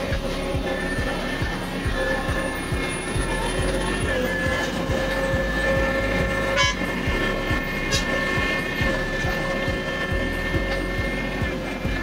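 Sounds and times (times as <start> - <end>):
paving machinery running: 0.0 - 12.0.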